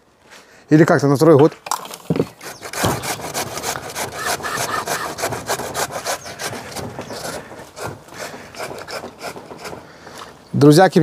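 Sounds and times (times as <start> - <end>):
radish being grated: 2.3 - 10.4.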